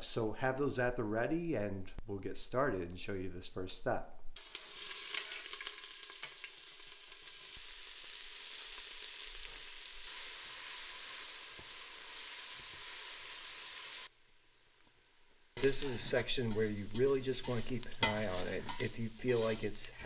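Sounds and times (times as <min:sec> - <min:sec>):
onion sizzling in hot oil: 0:04.4 - 0:20.0.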